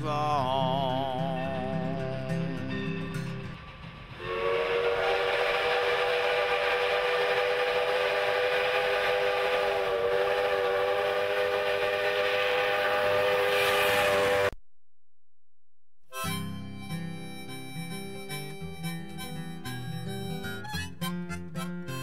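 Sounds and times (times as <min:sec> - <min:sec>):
steam locomotive chime whistle: 0:02.0 - 0:14.5
hiss of steam: 0:04.2 - 0:14.5.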